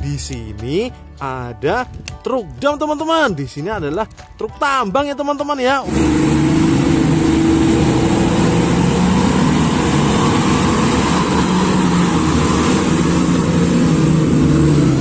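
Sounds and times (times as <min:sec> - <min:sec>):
truck diesel engine driving past: 0:05.8 - 0:15.0.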